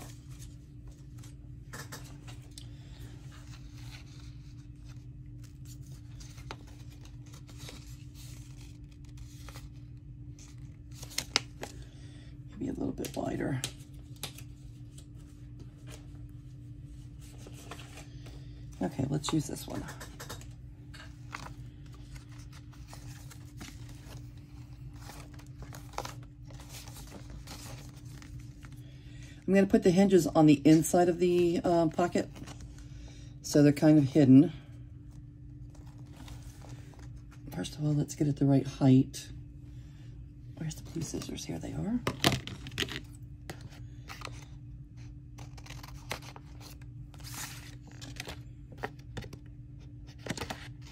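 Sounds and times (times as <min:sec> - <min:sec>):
paper rustling and crinkling: 0:00.0 - 0:11.9, 0:16.9 - 0:18.4, 0:19.3 - 0:28.9, 0:35.6 - 0:37.5, 0:42.0 - 0:50.9
steady low hum: 0:00.0 - 0:50.9.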